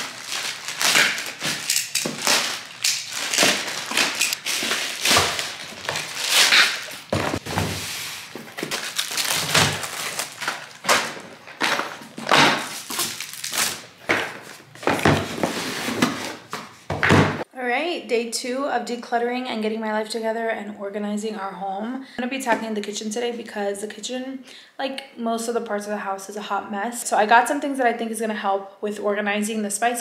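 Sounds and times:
plastic mailer crinkling: 0.0 - 16.6.

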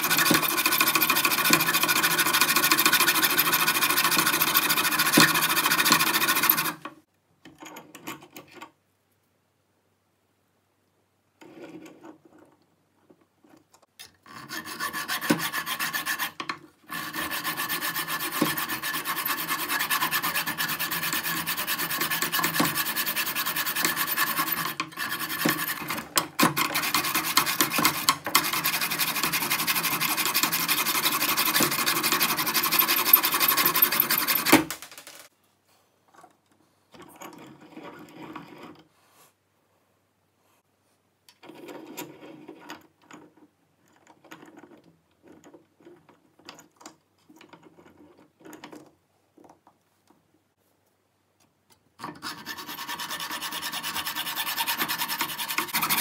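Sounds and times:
hacksaw cutting metal: 0.0 - 6.8, 14.0 - 34.7, 52.0 - 56.0
scrapes and clicks in vise: 11.4 - 35.3, 36.1 - 38.9, 41.3 - 50.2.

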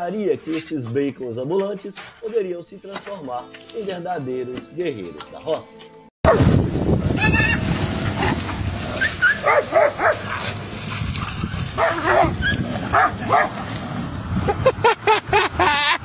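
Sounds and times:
rough scuffling: 0.0 - 6.0, 9.1 - 14.0
dog barking and yelping: 8.2 - 10.6, 11.7 - 13.6.

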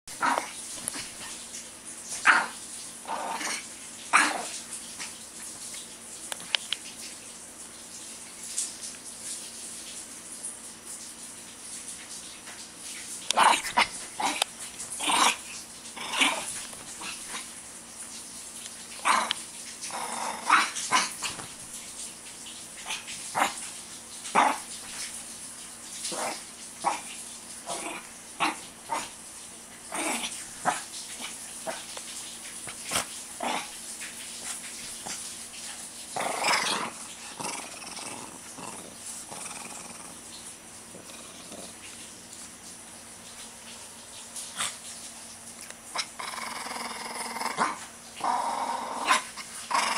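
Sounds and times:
dog growling and yapping: 0.2 - 1.4, 2.1 - 5.2, 13.3 - 17.6, 19.0 - 21.8, 22.8 - 23.7, 24.3 - 25.1, 26.0 - 29.2, 29.9 - 31.9, 32.6 - 33.8, 36.1 - 40.3, 40.9 - 42.0, 45.9 - 49.9.

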